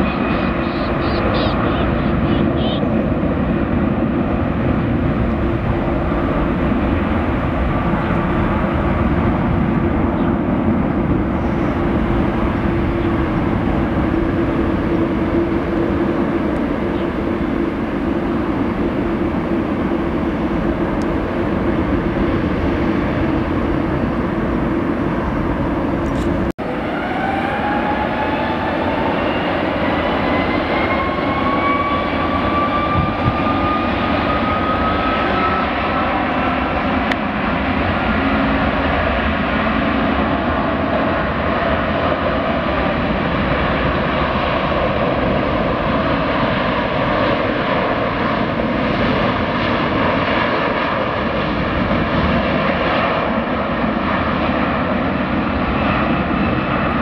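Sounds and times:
jet airliner roar: 0.0 - 57.0
jet engines spooling up: 0.0 - 57.0.

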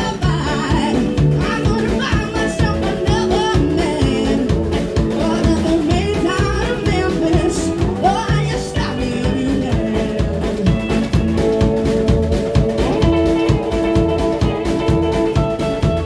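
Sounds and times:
woman singing lead: 0.0 - 10.9
bass guitar: 0.0 - 16.0
drum kit beat: 0.0 - 16.0
electric guitar: 0.0 - 16.0.

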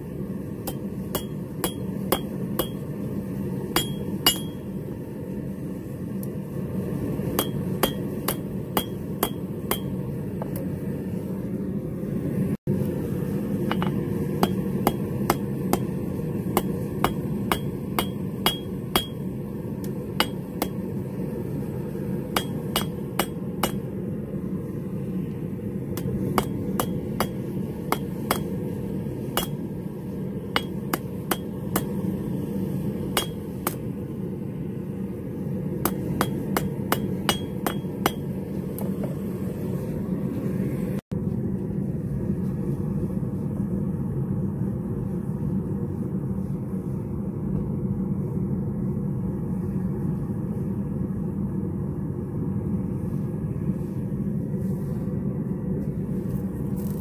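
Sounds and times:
steady low hum: 0.0 - 57.0
hammer ringing on anvil: 0.6 - 2.9, 3.8 - 4.7, 7.4 - 10.0, 16.6 - 19.3, 20.2 - 20.8, 22.4 - 23.8, 26.0 - 28.6, 29.4 - 29.6, 30.6 - 32.0, 33.2 - 33.8, 35.9 - 38.3.

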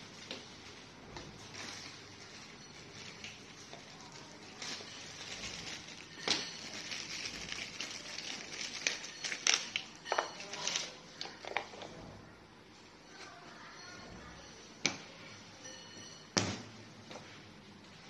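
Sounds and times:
plastic bag crinkling: 0.0 - 11.5.

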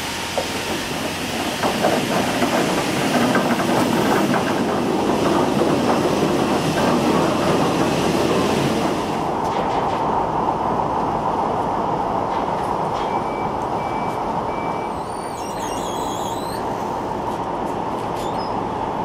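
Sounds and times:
textile machinery running: 0.0 - 9.8.

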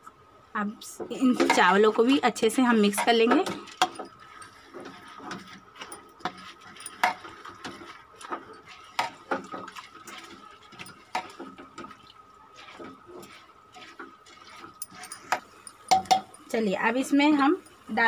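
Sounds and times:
spatula scraping metal pot: 1.1 - 16.4
wet squelchy mixing: 1.2 - 18.0.

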